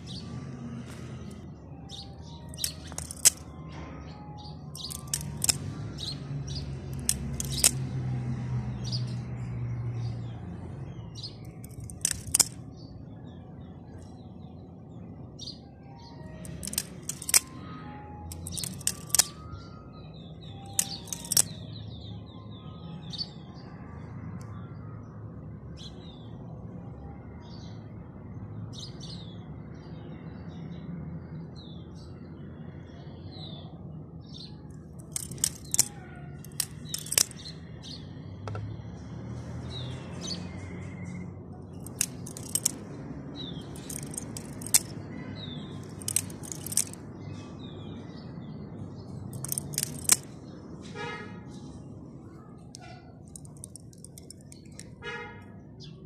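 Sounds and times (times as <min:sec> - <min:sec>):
birds chirping: 0:00.0 - 0:07.9, 0:10.0 - 0:23.4, 0:33.1 - 0:38.9, 0:39.7 - 0:50.7
metallic clicks of knife handles: 0:00.8 - 0:07.9, 0:11.4 - 0:12.6, 0:16.2 - 0:17.6, 0:18.3 - 0:19.7, 0:20.4 - 0:21.6, 0:34.7 - 0:37.5, 0:41.1 - 0:45.1, 0:45.7 - 0:47.0, 0:49.3 - 0:50.3, 0:52.7 - 0:55.0.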